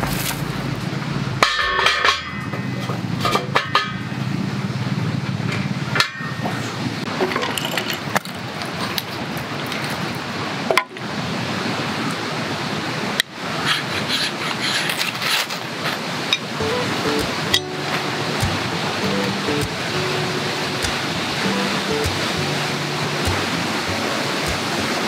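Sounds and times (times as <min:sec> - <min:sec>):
metal fire pit clanking: 0:01.4 - 0:04.0, 0:16.4 - 0:25.0.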